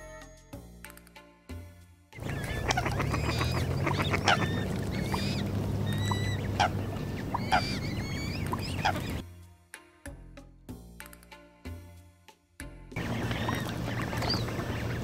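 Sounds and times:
waterfowl chirping: 0:02.2 - 0:09.2, 0:13.0 - 0:15.0
steady low hum: 0:13.0 - 0:15.0.

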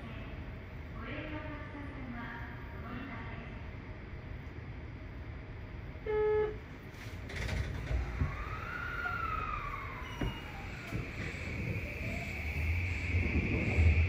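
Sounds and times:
train running in tunnel: 0:00.0 - 0:14.0
high whine: 0:08.0 - 0:14.0.

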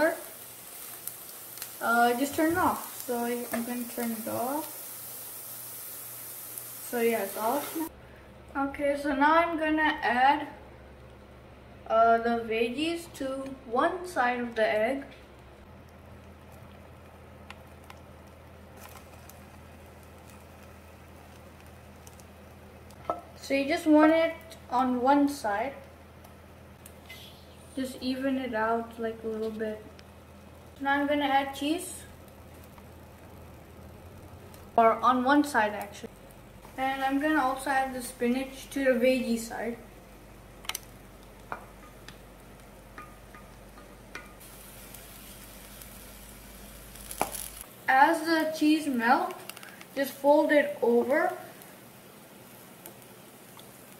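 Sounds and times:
faint steady hiss: 0:00.0 - 0:53.9
low steady hum: 0:00.0 - 0:53.9
spatula tapping skillet: 0:40.7 - 0:44.5.

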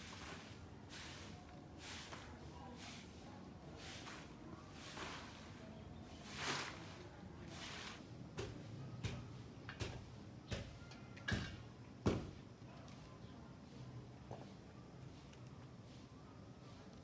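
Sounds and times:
broom swishing over dirt: 0:00.0 - 0:08.6.

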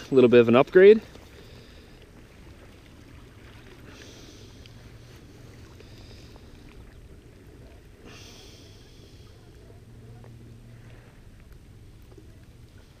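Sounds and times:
water splashing: 0:00.0 - 0:13.0.

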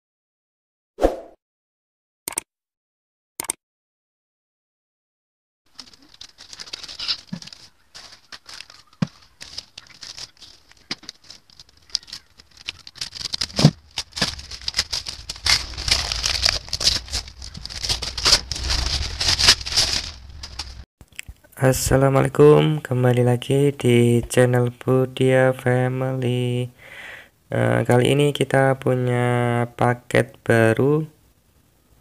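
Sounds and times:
paper and plastic crinkling: 0:05.7 - 0:20.8
paper tearing: 0:05.8 - 0:20.8.

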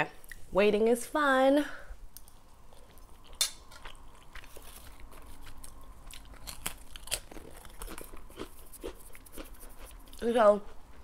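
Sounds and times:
chewing: 0:02.1 - 0:11.0
biting into cracker: 0:02.2 - 0:10.2.

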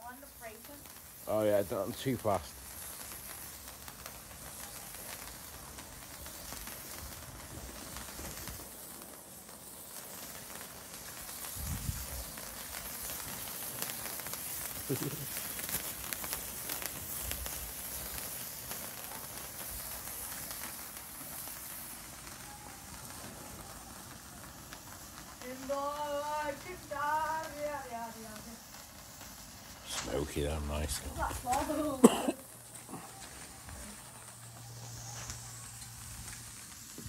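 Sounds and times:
firework fountains hissing and crackling: 0:00.0 - 0:37.0.

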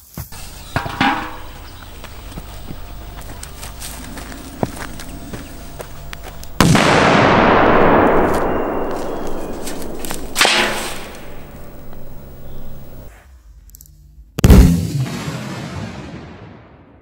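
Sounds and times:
firecracker bang under metal pot: 0:00.6 - 0:02.0, 0:06.6 - 0:13.0.

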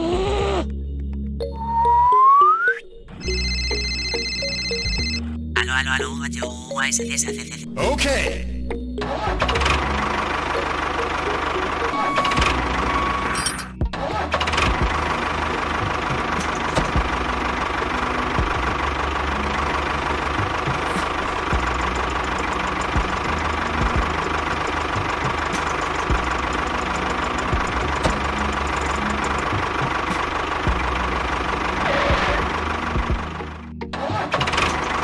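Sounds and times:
tractor engine idling: 0:08.7 - 0:35.0.

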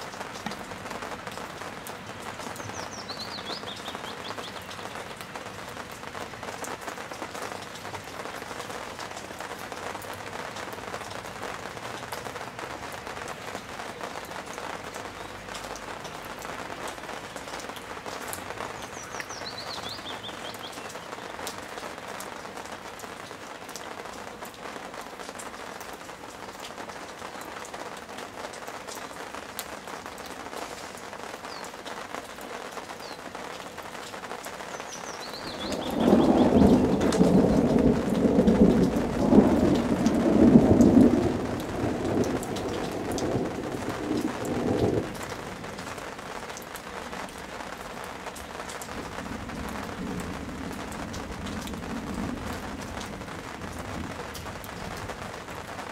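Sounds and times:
steady rain falling: 0:00.0 - 0:55.9
bird chirping: 0:02.6 - 0:05.0, 0:34.8 - 0:37.2.

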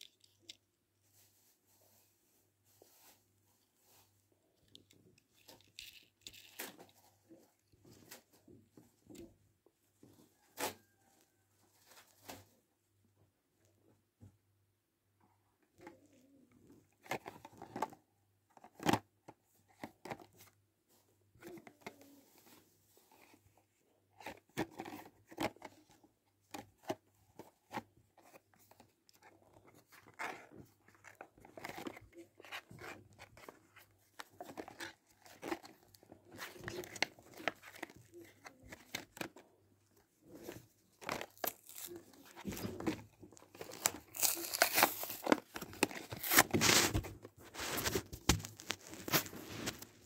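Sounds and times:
plastic packaging crinkling: 0:41.0 - 0:49.9
cardboard tearing: 0:41.1 - 0:42.9, 0:43.5 - 0:49.8.

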